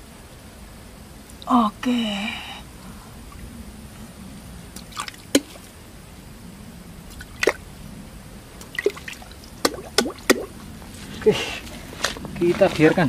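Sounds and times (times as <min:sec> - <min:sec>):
water plinking drips: 0:04.8 - 0:05.6, 0:08.6 - 0:10.5.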